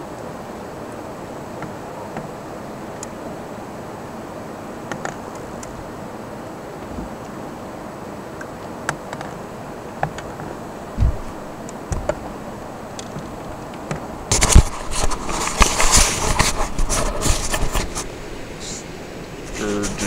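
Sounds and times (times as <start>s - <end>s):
rustling against microphone: 8.6s - 20.0s.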